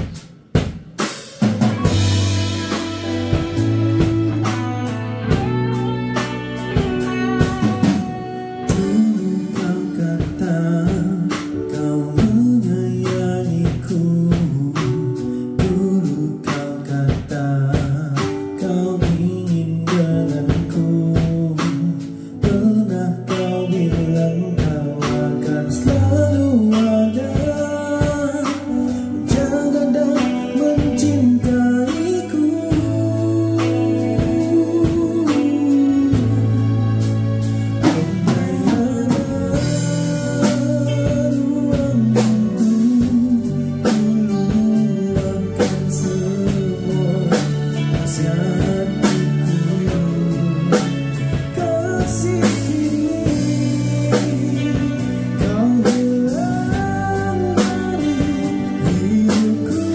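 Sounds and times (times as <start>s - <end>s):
drum kit beat: 0.0s - 59.9s
guitar: 0.0s - 59.9s
person singing: 1.2s - 59.9s.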